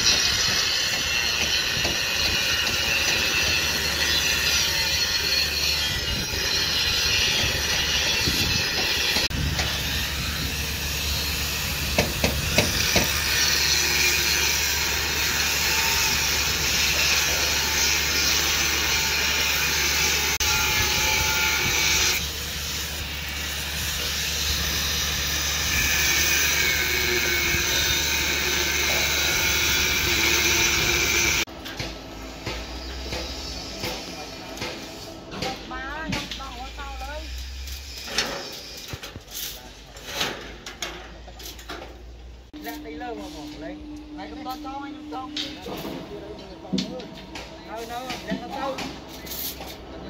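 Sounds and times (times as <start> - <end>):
angle grinder cutting steel: 0.0 - 40.0.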